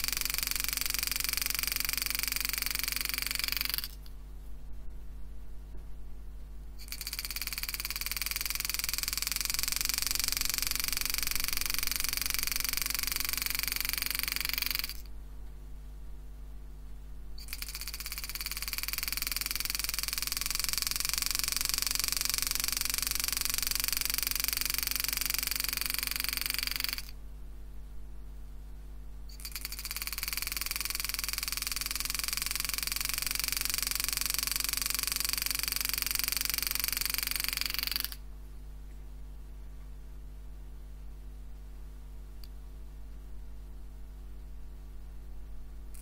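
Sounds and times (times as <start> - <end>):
steady low hum: 0.0 - 46.0
engraving machine buzzing: 6.8 - 15.0.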